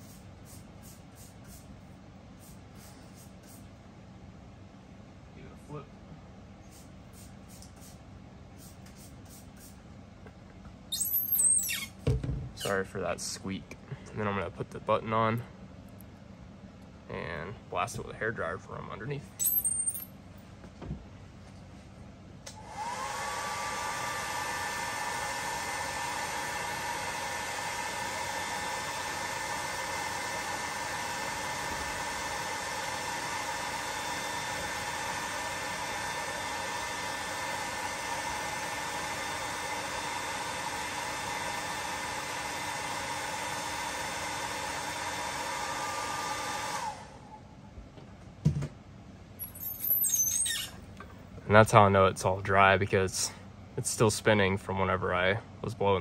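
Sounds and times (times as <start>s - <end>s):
hair dryer running: 22.5s - 47.2s.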